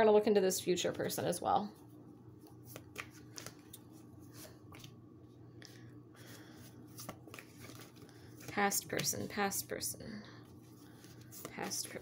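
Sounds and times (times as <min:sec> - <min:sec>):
cards being shuffled: 0:02.4 - 0:05.0, 0:06.2 - 0:09.4, 0:10.5 - 0:12.0.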